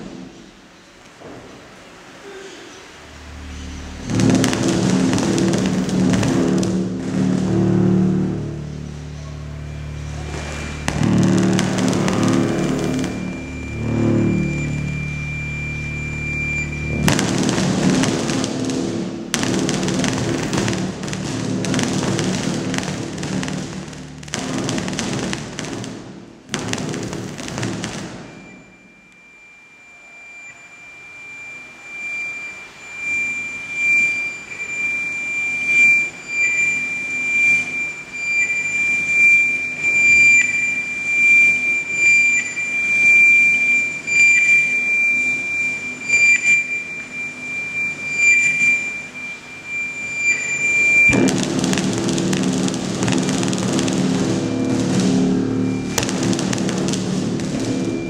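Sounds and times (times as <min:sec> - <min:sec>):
high steady sine tone: 0:02.3 - 0:58.0
electronic music over loudspeakers: 0:03.0 - 0:26.0, 0:51.0 - 0:58.0.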